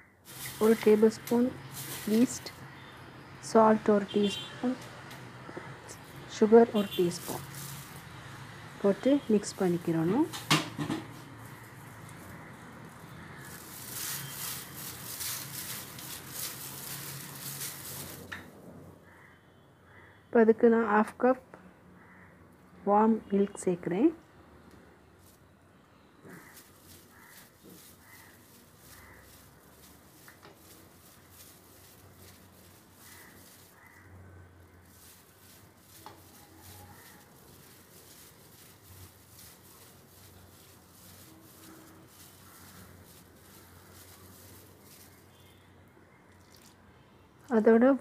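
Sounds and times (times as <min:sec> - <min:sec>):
hand stirring dry flour: 0:26.3 - 0:45.4.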